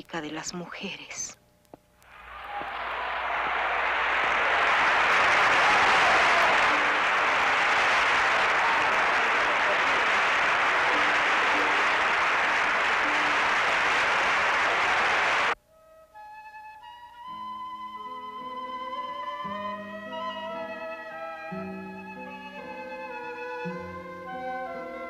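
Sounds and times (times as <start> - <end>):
audience applause: 2.1 - 15.6.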